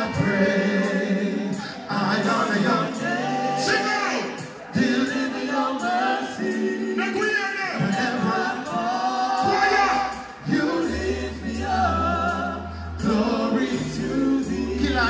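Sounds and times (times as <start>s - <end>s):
dancehall music over pa: 0.0s - 15.0s.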